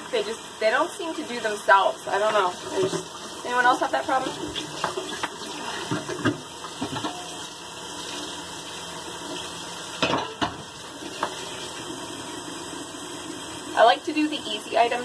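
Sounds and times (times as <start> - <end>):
running tap water: 0.0 - 15.0
dishes and cutlery clattering: 10.0 - 10.6.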